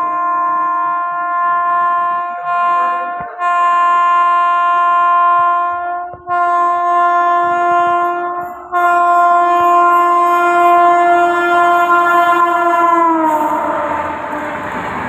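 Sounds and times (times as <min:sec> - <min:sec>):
electric locomotive horn blasts: 0:00.0 - 0:15.0.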